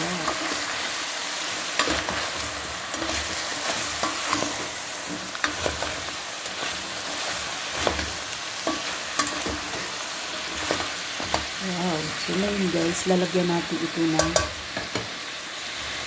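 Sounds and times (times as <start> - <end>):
food sizzling in hot oil: 0.0 - 16.0
spoon scraping a metal pot: 7.8 - 11.4.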